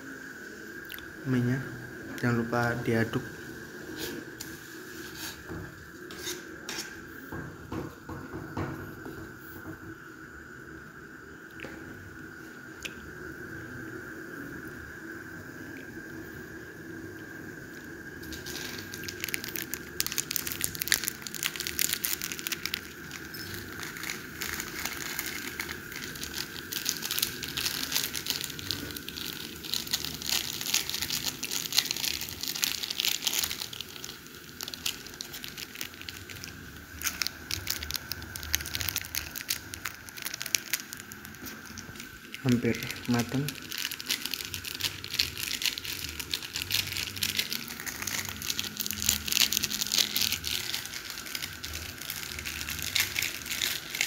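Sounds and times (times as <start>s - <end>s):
plastic sachets crinkling: 18.2s - 54.0s.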